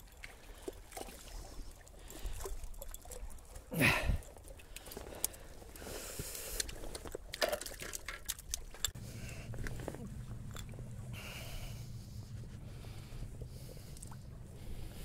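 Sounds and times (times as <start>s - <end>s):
clicks and rustling: 6.6s - 10.8s
steady low hum: 8.8s - 15.0s.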